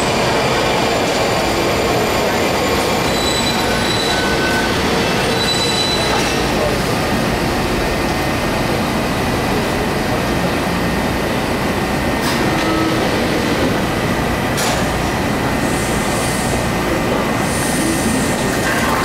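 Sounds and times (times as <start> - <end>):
railcar mechanical hum: 0.0 - 19.0.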